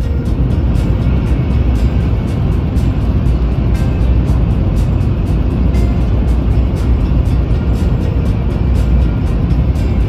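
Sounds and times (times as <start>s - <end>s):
background music with steady beat: 0.0s - 10.0s
heavy low bass: 0.0s - 10.0s.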